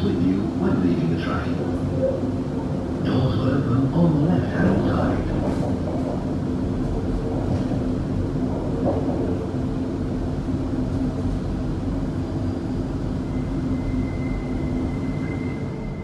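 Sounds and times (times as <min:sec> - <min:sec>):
train running: 0:00.0 - 0:16.0
faint high whine: 0:13.1 - 0:16.0.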